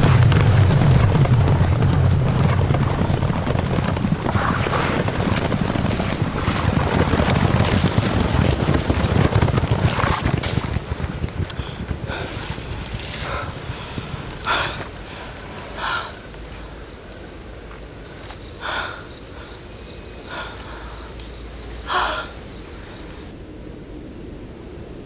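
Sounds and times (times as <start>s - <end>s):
woman gasping heavily: 13.2s - 16.3s, 21.9s - 22.4s.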